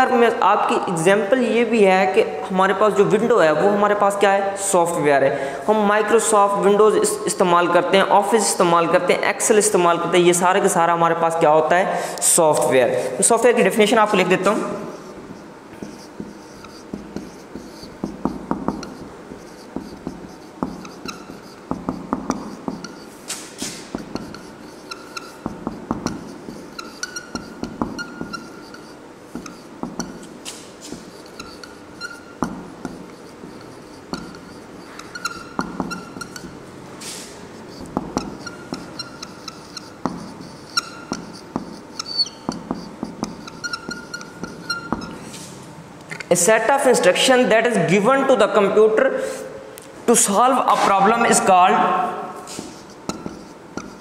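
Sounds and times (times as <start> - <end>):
marker pen squeaking on whiteboard: 13.3 - 46.3, 50.6 - 54.0.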